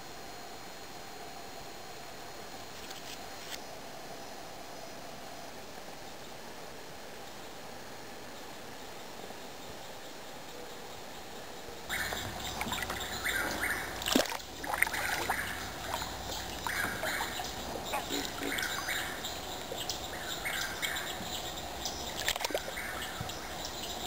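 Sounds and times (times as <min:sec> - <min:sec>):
paddle water splashing: 0:11.9 - 0:21.4, 0:22.0 - 0:23.4.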